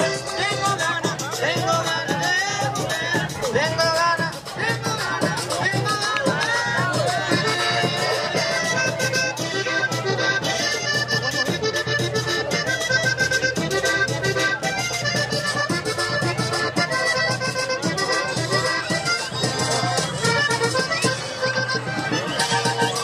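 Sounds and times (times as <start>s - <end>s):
accordion playing fast melody: 0.0s - 23.0s
steady percussion beat: 0.0s - 23.0s.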